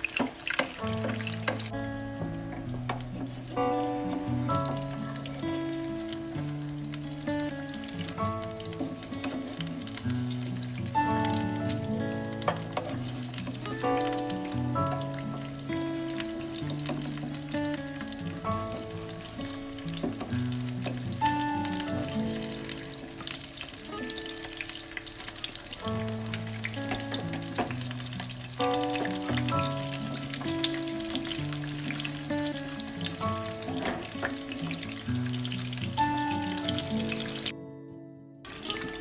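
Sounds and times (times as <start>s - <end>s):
eggs sizzling in oil: 0.0s - 37.5s, 38.5s - 39.0s
instrumental background music: 0.2s - 39.0s.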